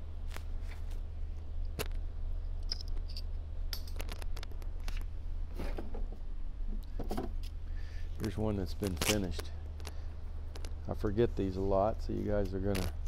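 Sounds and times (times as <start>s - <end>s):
steady low hum: 0.0s - 13.0s
small parts clicking and knocking: 2.6s - 5.1s.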